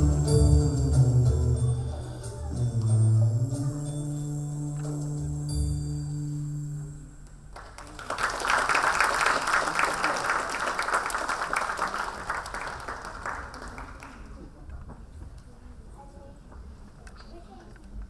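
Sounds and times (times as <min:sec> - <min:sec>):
audience clapping: 0:07.5 - 0:14.6.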